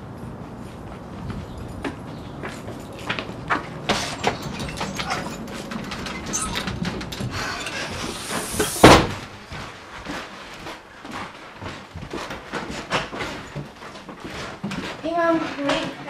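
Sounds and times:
footsteps in a house: 0:00.0 - 0:16.0
door slamming shut: 0:07.7 - 0:09.3.

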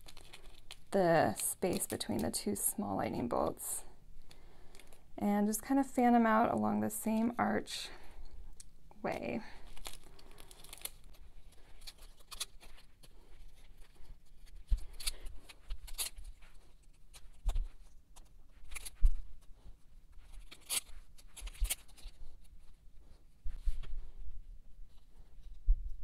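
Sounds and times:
plastic sheets crinkling and clicking: 0:00.0 - 0:02.6, 0:09.6 - 0:19.2.

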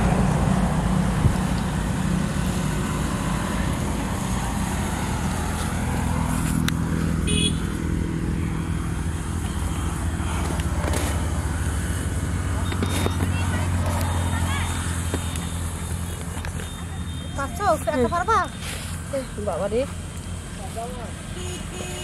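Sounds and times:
motor engine humming: 0:00.0 - 0:22.0.

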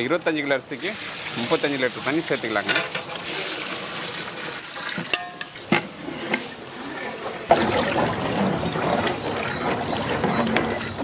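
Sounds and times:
steady noise from pot: 0:00.0 - 0:11.0
water pouring into pot: 0:00.7 - 0:05.6, 0:07.5 - 0:11.0
metal bucket clanking: 0:01.0 - 0:11.0.

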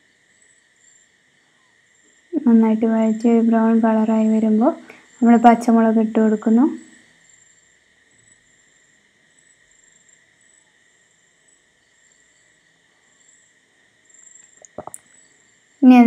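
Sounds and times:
crickets trilling: 0:00.0 - 0:16.0.

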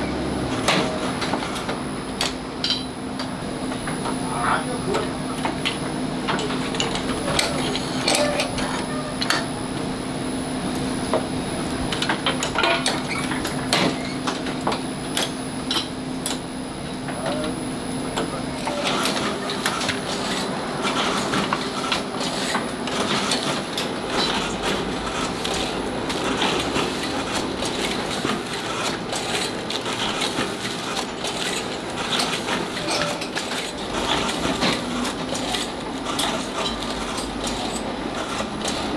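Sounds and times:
steady machine hum: 0:00.0 - 0:38.9
machinery metal clicks and clatter: 0:18.2 - 0:38.9.

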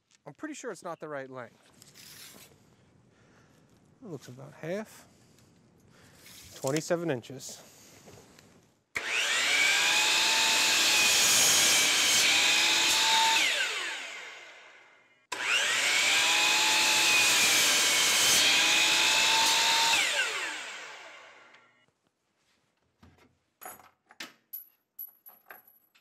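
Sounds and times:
miter saw motor whining: 0:09.0 - 0:21.7.

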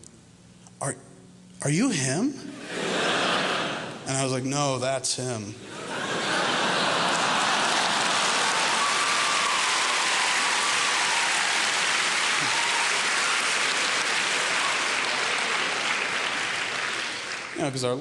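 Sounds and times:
audience laughing: 0:02.5 - 0:04.1, 0:05.6 - 0:09.5
audience applauding: 0:05.9 - 0:18.0.

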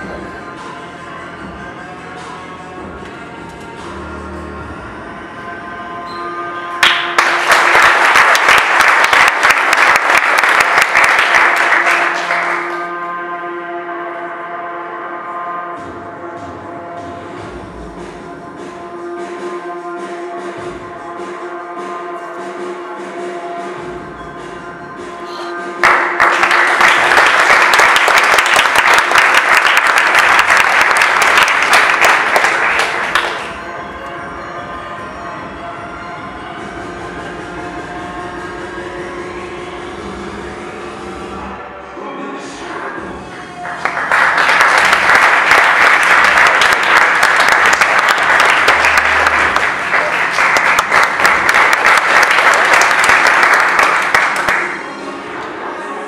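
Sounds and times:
music playing: 0:00.0 - 0:56.0
audience applause: 0:06.8 - 0:12.8, 0:25.8 - 0:33.6, 0:43.6 - 0:54.8.

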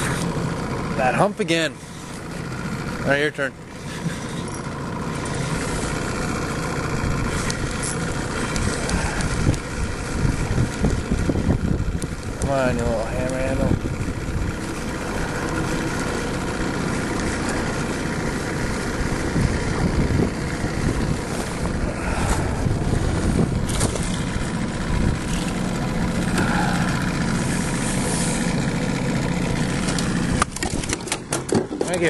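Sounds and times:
wind buffeting microphone: 0:08.6 - 0:15.8, 0:19.1 - 0:26.8.

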